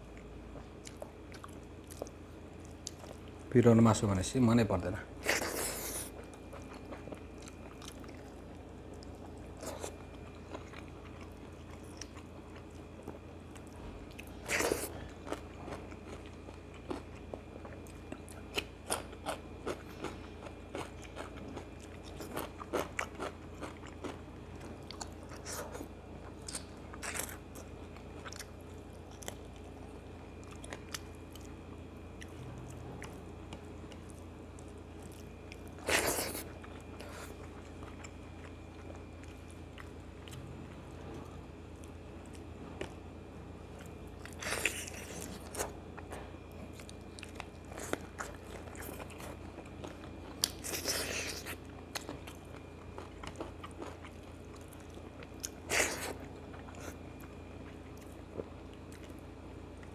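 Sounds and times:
chewing and crunching food: 0.0s - 3.6s, 4.6s - 59.9s.

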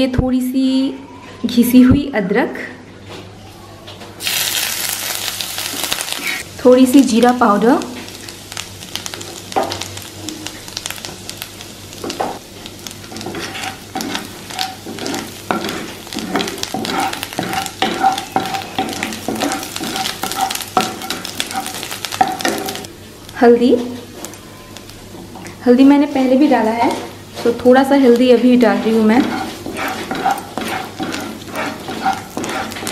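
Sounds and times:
hot oil sizzling and crackling: 4.2s - 32.9s
wooden spatula scraping pan: 13.0s - 22.8s, 26.8s - 32.9s.

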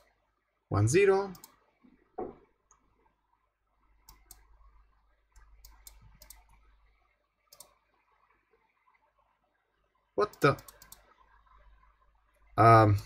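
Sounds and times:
computer mouse clicks: 1.3s - 1.6s, 4.0s - 4.5s, 5.3s - 6.6s, 7.5s - 7.8s, 10.2s - 11.2s.

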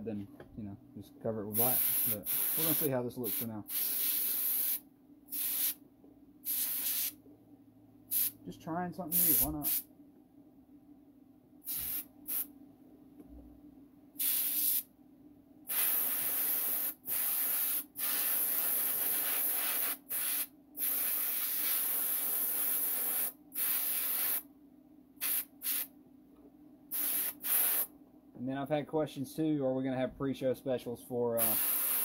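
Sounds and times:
airbrush spraying hiss: 1.6s - 5.8s, 6.4s - 7.2s, 8.1s - 8.4s, 9.2s - 9.9s, 11.7s - 12.5s, 14.2s - 14.9s, 15.7s - 24.4s, 25.2s - 25.9s, 26.9s - 27.9s, 31.4s - 32.0s.

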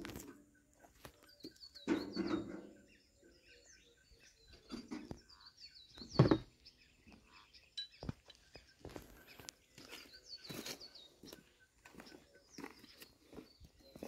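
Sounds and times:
small birds chirping: 0.0s - 14.0s
knocks: 6.1s - 6.5s.

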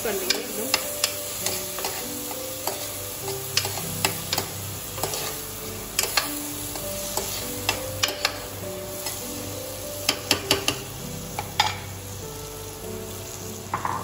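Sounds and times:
oil sizzling: 0.0s - 14.0s
spoon stirring and scraping pot: 0.3s - 5.4s.

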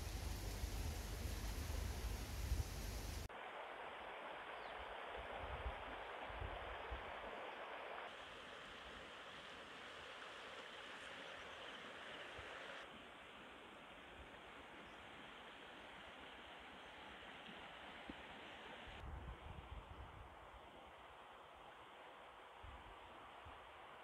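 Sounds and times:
outdoor background hiss: 0.0s - 24.0s.

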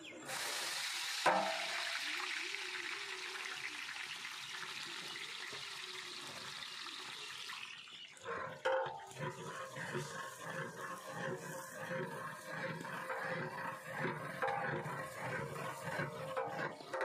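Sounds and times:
onions sizzling in oil: 0.2s - 7.6s
stirring in a pot: 8.0s - 17.0s
metal rod knocking a pot: 13.0s - 17.0s.

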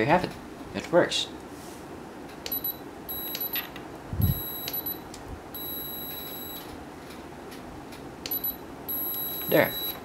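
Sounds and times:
high electronic tone: 2.6s - 3.5s, 4.2s - 5.0s, 5.6s - 6.6s, 8.3s - 10.0s.

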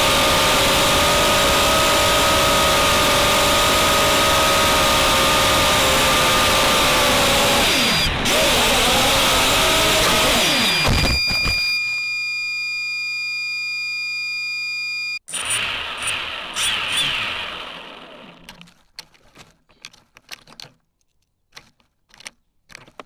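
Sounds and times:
drone motors whining: 0.0s - 18.7s
thin electronic tone: 10.6s - 15.2s.

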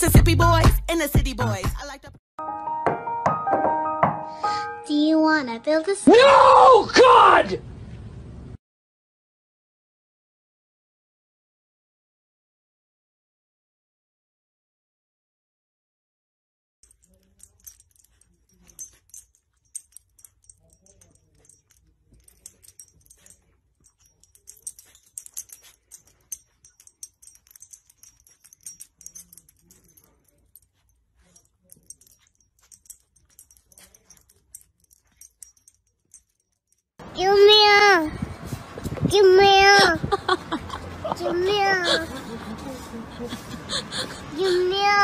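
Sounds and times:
dog collar tags jingling: 16.8s - 38.2s, 38.9s - 45.0s.

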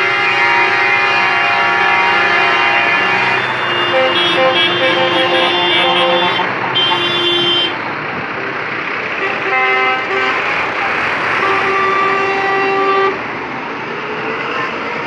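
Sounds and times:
truck horns tooting: 0.0s - 7.9s, 9.1s - 13.3s
diesel truck engines: 0.0s - 15.0s.

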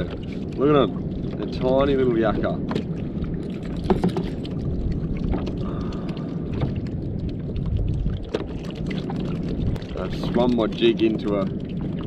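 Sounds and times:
water noise: 0.0s - 12.0s
wind: 0.0s - 12.0s
fishing gear clicks and knocks: 3.8s - 4.4s.

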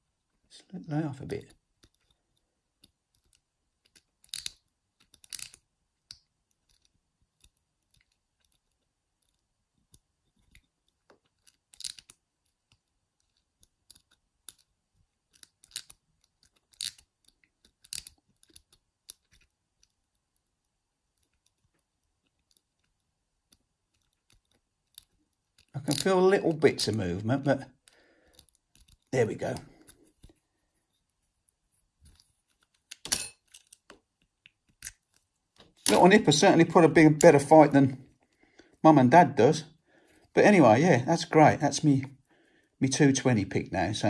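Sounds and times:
lock pick scratching and clicking: 1.8s - 20.4s, 21.1s - 27.0s, 27.8s - 30.3s, 32.0s - 34.0s, 34.6s - 36.0s.

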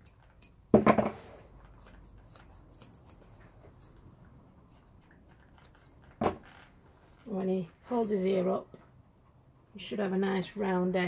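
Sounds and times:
scissors snipping hair: 1.7s - 3.2s.

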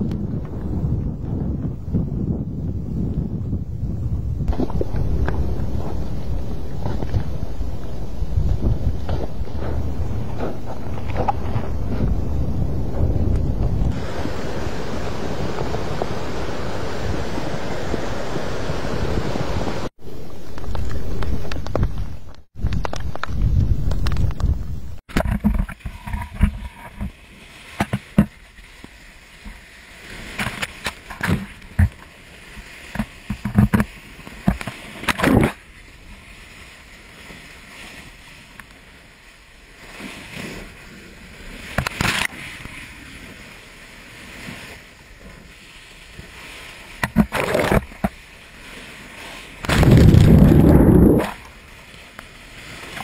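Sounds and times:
waves breaking on rocks: 13.8s - 19.9s, 25.0s - 53.0s
sharp cracks and pops: 20.5s - 26.5s, 49.6s - 51.5s
big splashing crash: 49.6s - 51.4s.

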